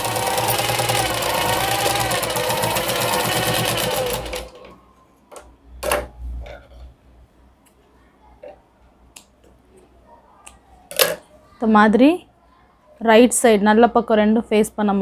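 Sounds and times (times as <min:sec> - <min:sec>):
sewing machine running fast: 0:00.0 - 0:04.7.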